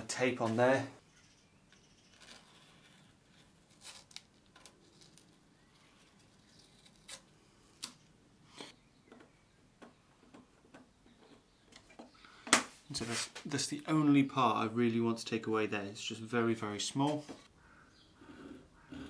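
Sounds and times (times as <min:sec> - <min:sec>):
masking tape rustling: 0:00.4 - 0:08.7.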